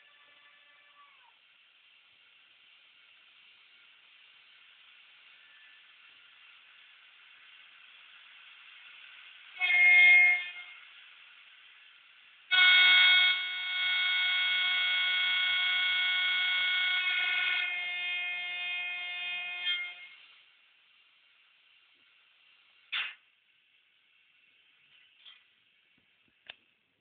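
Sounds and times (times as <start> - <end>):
model train horn blasts: 0.0 - 1.2, 9.5 - 11.0, 12.5 - 20.4.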